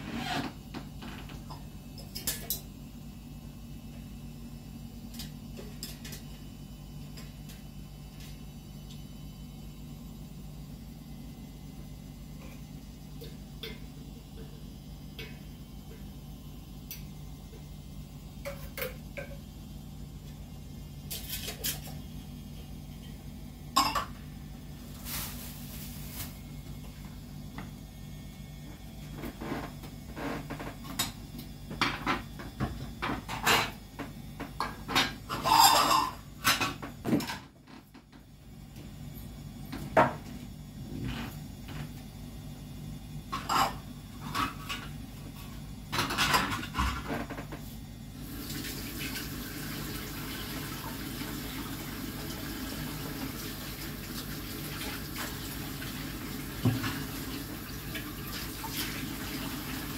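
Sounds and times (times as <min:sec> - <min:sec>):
dishes and cutlery clattering: 0:34.6 - 0:36.8
kitchen tap running: 0:48.2 - 0:59.9.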